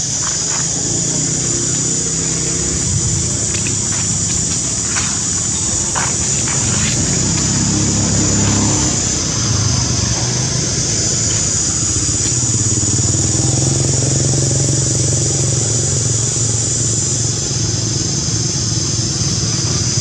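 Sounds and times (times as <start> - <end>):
high-pitched drone: 0.0 - 13.6
motor engine running: 0.0 - 20.0.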